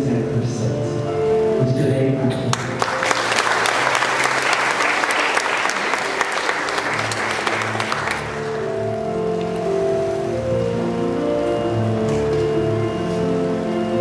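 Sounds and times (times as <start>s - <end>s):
soft instrumental music: 0.0s - 14.0s
audience applauding: 2.5s - 9.7s.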